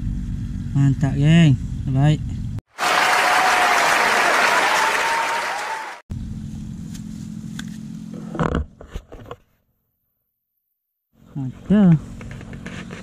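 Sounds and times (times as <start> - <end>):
audience applauding and cheering: 2.7 - 6.0.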